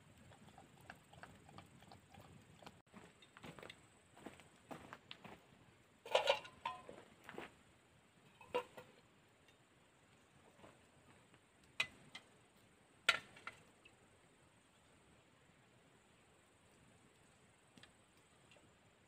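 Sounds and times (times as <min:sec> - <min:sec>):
spoon clinking on metal dishes: 0:06.1 - 0:07.0.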